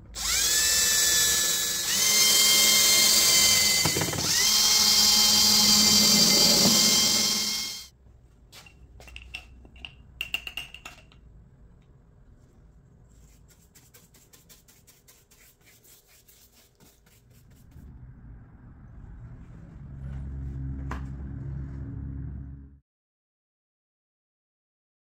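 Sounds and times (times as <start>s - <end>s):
cordless drill driving screw: 0.2s - 7.9s
brush strokes on wood: 13.0s - 17.9s.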